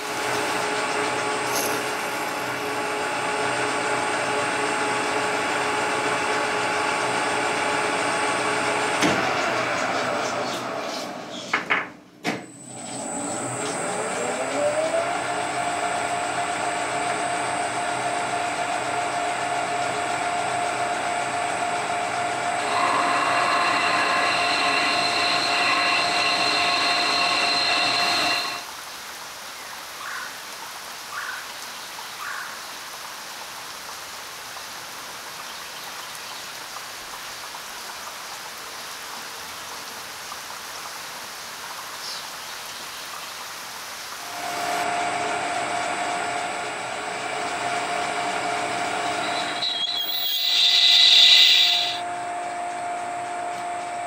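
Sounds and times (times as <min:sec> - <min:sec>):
metal lathe gear whine: 0:00.0 - 0:11.4, 0:12.5 - 0:28.7, 0:44.2 - 0:54.0.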